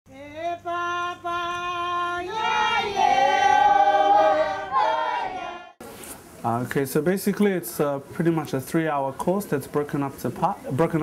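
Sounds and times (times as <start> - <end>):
choir singing held notes: 0.6 - 5.8.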